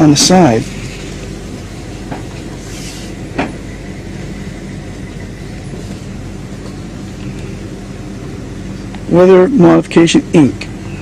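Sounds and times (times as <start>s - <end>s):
vehicle engine and road hum: 0.0s - 11.0s.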